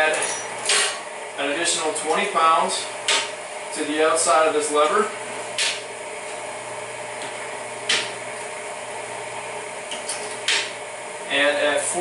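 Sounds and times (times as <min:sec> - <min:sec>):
electric motor humming: 0:00.5 - 0:12.0.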